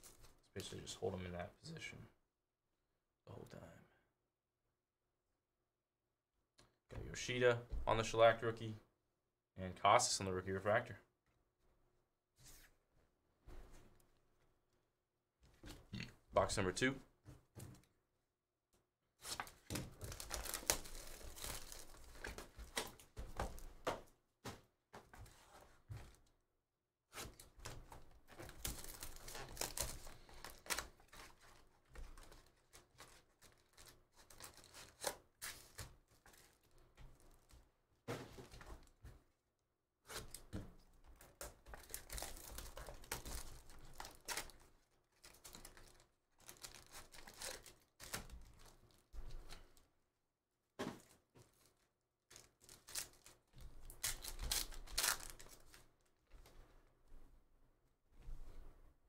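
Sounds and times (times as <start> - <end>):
packaging tearing and crinkling: 19.2 - 23.0, 28.4 - 36.8, 41.4 - 48.7, 52.3 - 55.8.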